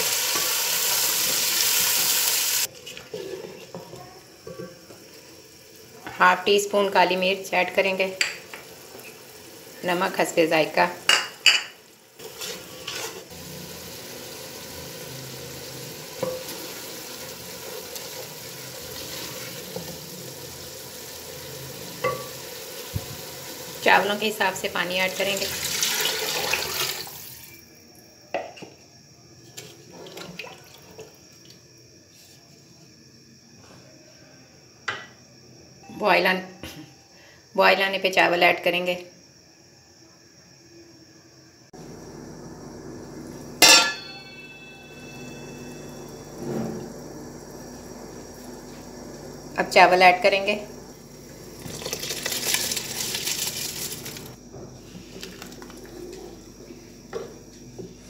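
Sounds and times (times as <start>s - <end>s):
rice splashing into boiling water: 25.4s - 27.5s, 51.2s - 54.4s
water sloshing in pot: 29.6s - 31.6s, 50.9s - 54.4s
spoon knocking metal pot: 43.6s - 45.3s.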